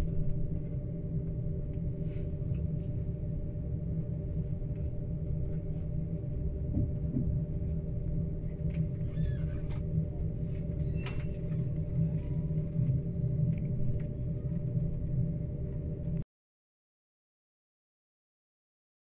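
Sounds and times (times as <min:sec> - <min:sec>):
constant hum: 0:00.0 - 0:16.2
train rumbling: 0:00.0 - 0:16.2
faint squeaks and clicks: 0:08.5 - 0:15.2.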